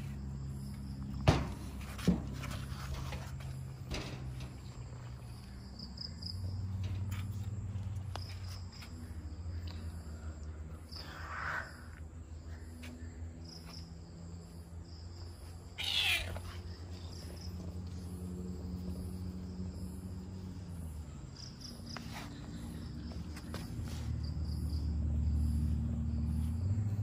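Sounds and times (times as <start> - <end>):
cat meowing: 15.8 - 16.5.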